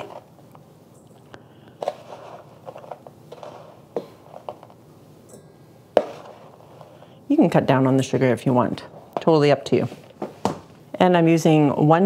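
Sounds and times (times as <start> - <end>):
spoon scraping steel bowl: 6.0 - 7.1.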